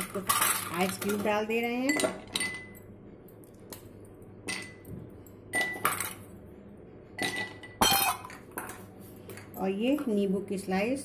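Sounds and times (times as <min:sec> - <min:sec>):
ice cubes clinking in glass: 0:00.0 - 0:02.7
glass ringing: 0:01.9 - 0:02.8, 0:04.4 - 0:04.9, 0:05.5 - 0:06.2, 0:07.2 - 0:08.4.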